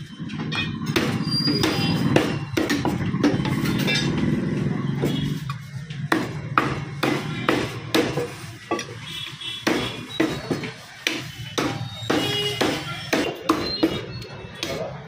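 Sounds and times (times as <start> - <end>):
cleaver chopping on wooden block: 1.0 - 3.4, 6.0 - 8.4, 9.6 - 14.0.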